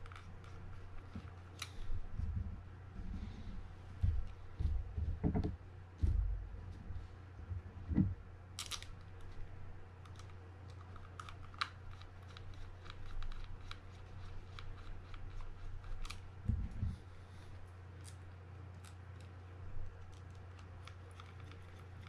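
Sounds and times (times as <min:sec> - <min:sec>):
steady low hum: 0:00.0 - 0:22.0
soft low thumps: 0:02.0 - 0:08.4, 0:16.4 - 0:17.0.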